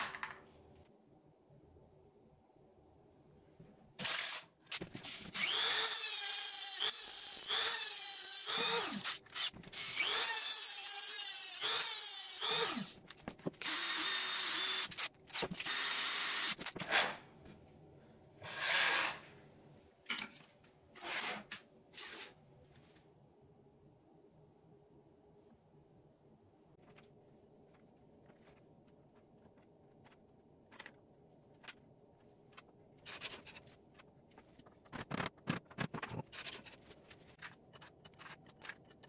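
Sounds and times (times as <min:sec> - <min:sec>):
electric drill cutting into wood: 0:05.4 - 0:13.0, 0:13.6 - 0:16.6.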